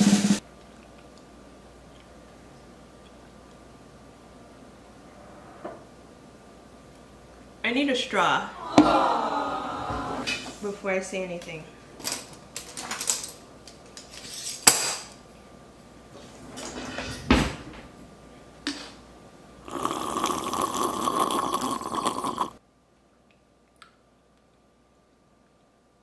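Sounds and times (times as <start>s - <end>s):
slurping through a straw: 19.7s - 22.6s.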